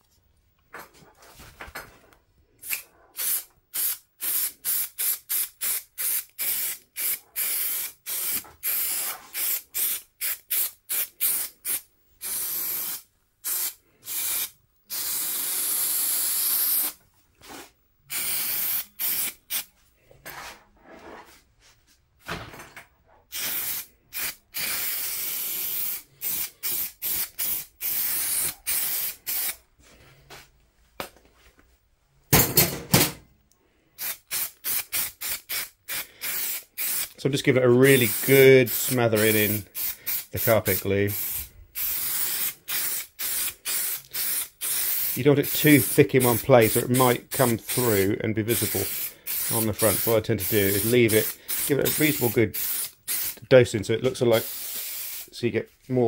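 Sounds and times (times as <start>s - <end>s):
aerosol can hissing: 2.6s - 17.0s, 18.1s - 19.7s, 23.3s - 29.6s, 34.0s - 37.2s, 37.8s - 53.4s, 54.3s - 55.3s.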